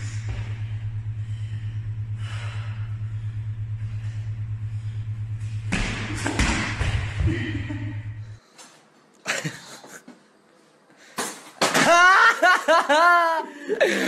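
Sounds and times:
steady low hum: 0.0 - 10.9
person falling with a crash: 11.2 - 12.4.

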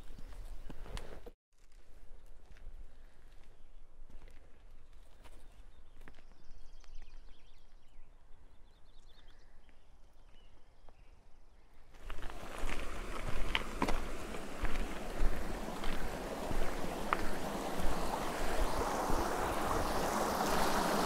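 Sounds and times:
faint footsteps on dirt path: 0.0 - 8.1, 9.0 - 11.2, 11.9 - 21.0
birds chirping: 5.4 - 21.0
cart wheel rattling over stones: 12.0 - 19.4
wind on microphone: 12.1 - 21.0.

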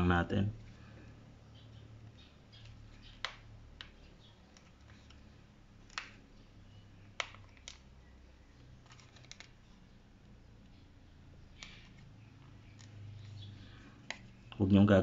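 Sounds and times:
plastic clips snapping: 5.8 - 6.2, 7.1 - 7.9.

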